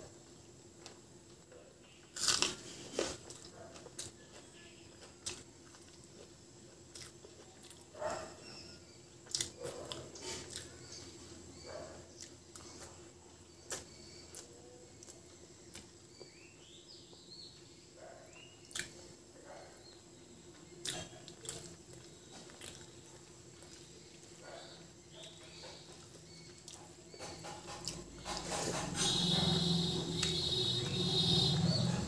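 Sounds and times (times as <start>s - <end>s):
soft chewing and lip smacks: 5.0s - 7.9s, 9.2s - 11.0s, 12.1s - 13.0s, 13.7s - 16.4s, 18.6s - 19.1s, 20.8s - 24.4s.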